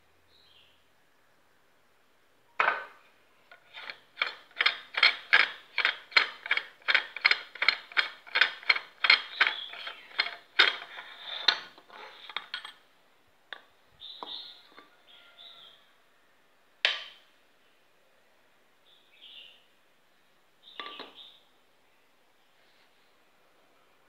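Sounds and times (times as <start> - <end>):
rapid ratcheting clicks: 3.8 - 11.6.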